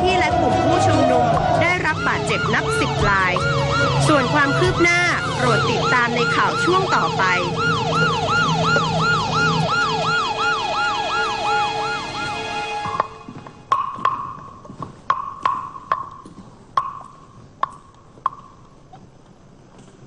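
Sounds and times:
police siren yelping: 0.1s - 13.3s
sharp ringing knocks: 13.7s - 18.6s.

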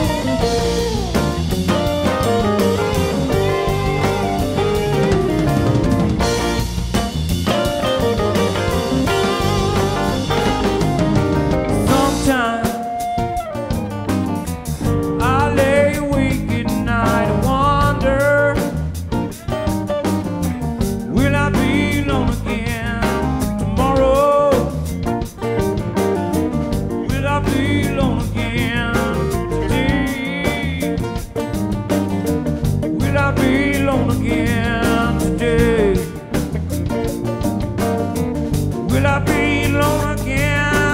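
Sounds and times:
drum kit: 0.0s - 40.9s
electric guitar: 0.0s - 40.9s
keyboard: 0.0s - 40.9s
man singing: 2.8s - 5.1s, 11.5s - 13.4s, 15.1s - 19.5s, 21.1s - 25.0s, 26.9s - 31.5s, 32.9s - 36.6s, 38.8s - 40.9s.

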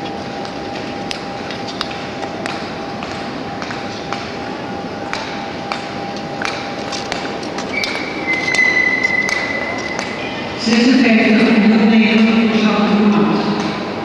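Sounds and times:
hall hum: 0.0s - 14.0s.

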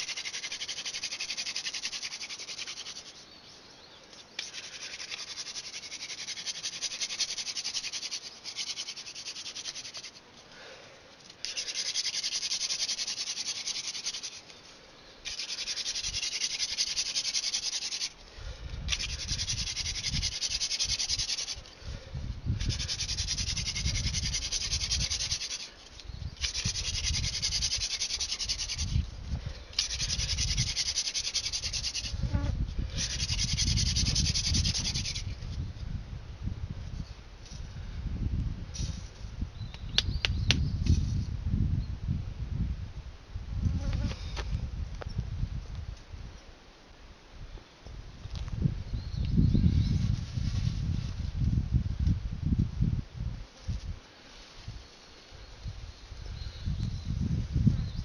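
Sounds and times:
wooden spindle rasping on board: 26.4s - 29.0s, 29.8s - 32.2s.

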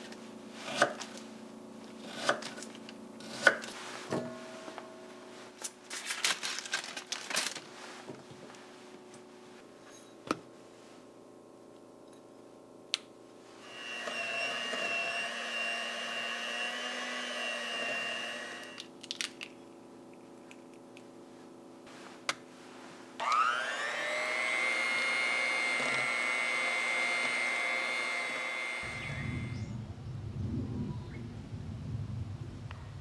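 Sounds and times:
electric blender running: 13.6s - 18.9s, 23.2s - 29.6s
blender clicks: 23.2s - 23.9s.

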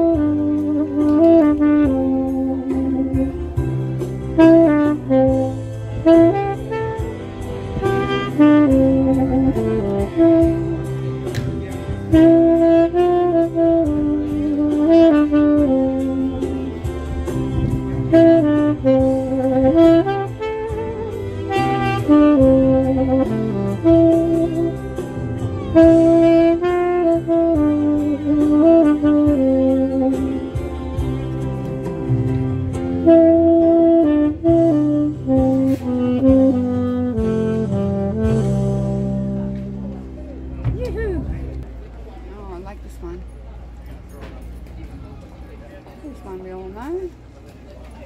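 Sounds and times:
saxophone melody: 0.0s - 41.6s
low bass accompaniment: 0.0s - 48.0s.

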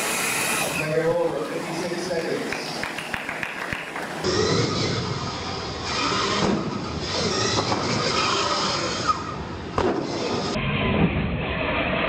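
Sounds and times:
toy truck motor whine: 0.0s - 1.0s.

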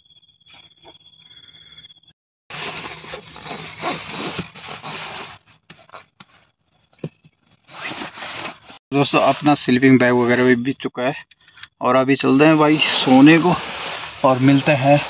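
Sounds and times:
sleeping bag rustling: 2.5s - 6.1s.

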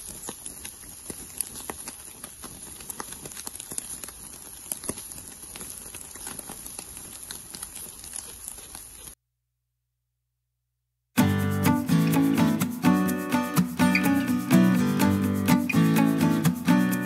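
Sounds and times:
embers crackling: 0.0s - 9.2s, 11.2s - 17.0s
meat sizzling on grill: 0.0s - 9.2s.

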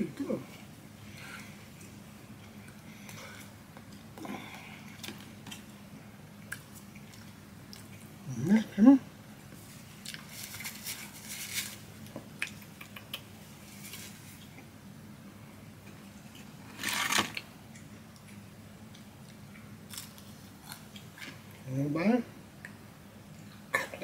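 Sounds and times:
paper packaging rustling: 10.2s - 11.9s, 16.8s - 17.4s.

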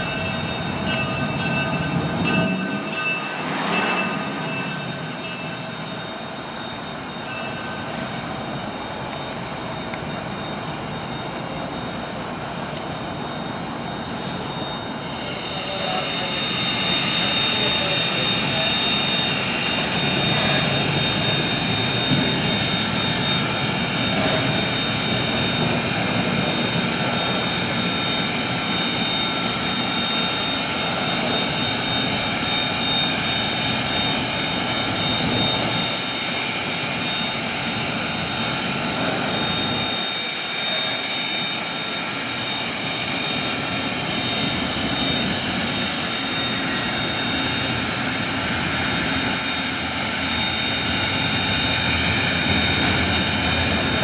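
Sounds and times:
high-pitched whine: 0.0s - 54.0s
steam hissing from locomotive: 14.2s - 54.0s.

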